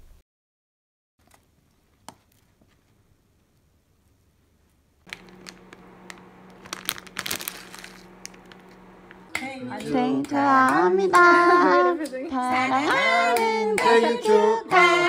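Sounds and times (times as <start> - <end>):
plastic packet crinkling: 5.1 - 9.4
steady low hum: 5.1 - 11.0.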